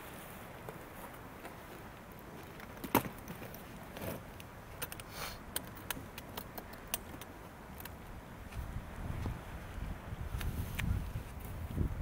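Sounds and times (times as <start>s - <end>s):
short hiss: 5.1s - 5.4s.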